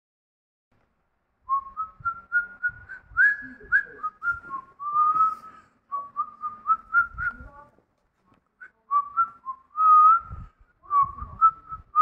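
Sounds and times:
person whistling a tune: 0:01.5 - 0:07.5, 0:08.6 - 0:12.0.

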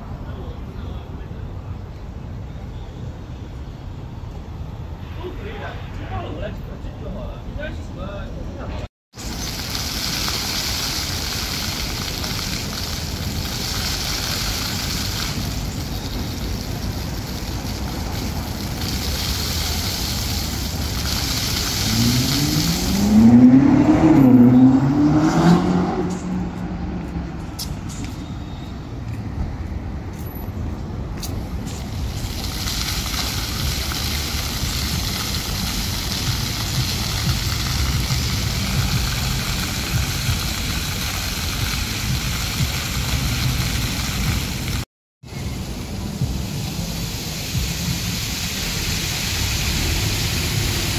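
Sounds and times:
city traffic noise: 0:00.0 - 0:50.9
vehicle accelerating nearby: 0:20.9 - 0:28.2.

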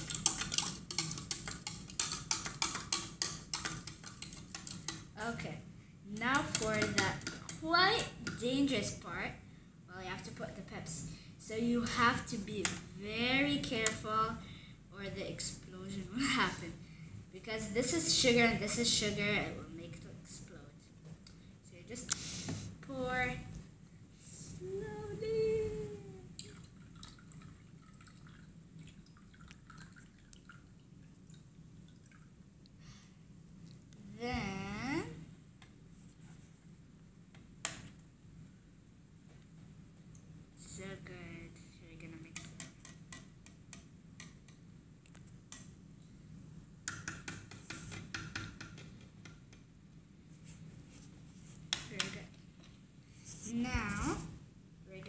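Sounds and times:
cola dripping into cup: 0:26.4 - 0:32.8.

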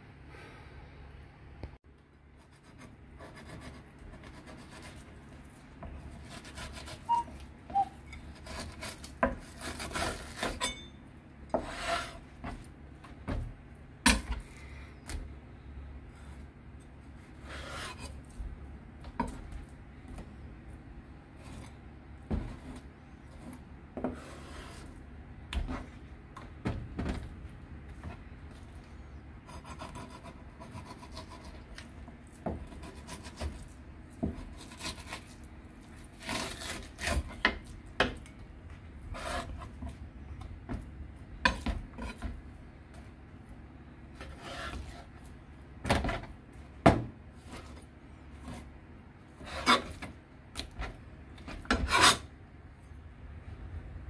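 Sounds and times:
knife scraping fish: 0:06.1 - 0:10.8, 0:17.4 - 0:18.3, 0:34.3 - 0:37.5, 0:49.4 - 0:50.8, 0:51.5 - 0:52.3.

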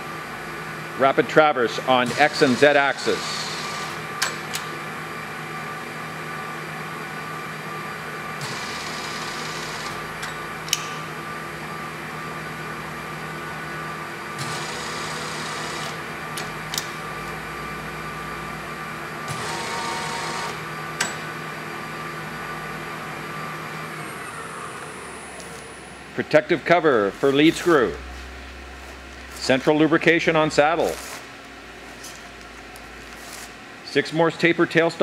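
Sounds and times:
machine hum: 0:00.0 - 0:34.7
lathe power feed whirring: 0:01.8 - 0:04.4, 0:07.7 - 0:10.2, 0:12.0 - 0:18.2, 0:18.8 - 0:26.2.

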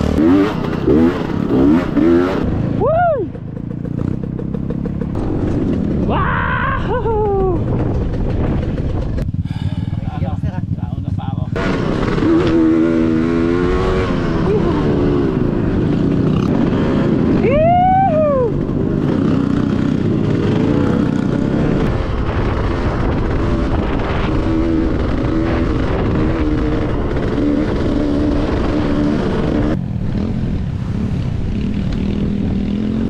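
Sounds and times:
dirt bike engine revving: 0:00.0 - 0:06.2, 0:07.0 - 0:33.0
wind rumble on microphone: 0:05.1 - 0:33.0.

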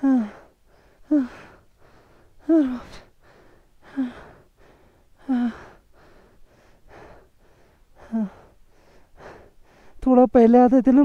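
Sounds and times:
man breathing hard: 0:00.0 - 0:10.0.

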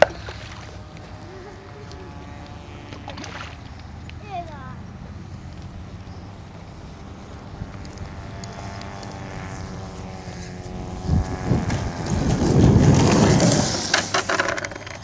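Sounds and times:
model plane motor whining: 0:00.0 - 0:04.2, 0:04.9 - 0:15.0
rough rumble on pavement: 0:07.2 - 0:15.0.

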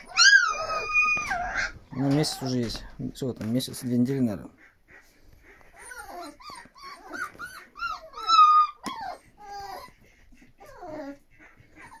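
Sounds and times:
puppies whining and squealing: 0:00.0 - 0:02.8, 0:05.4 - 0:12.0.

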